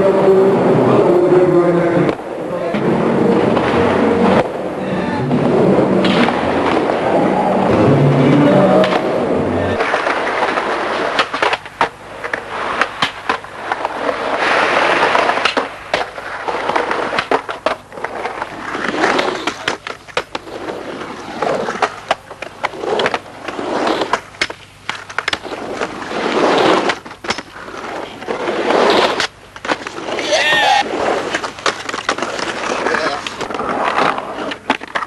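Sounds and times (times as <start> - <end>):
skateboard wheels rolling: 0.0 - 35.0
skateboard clacking on ground: 9.8 - 35.0.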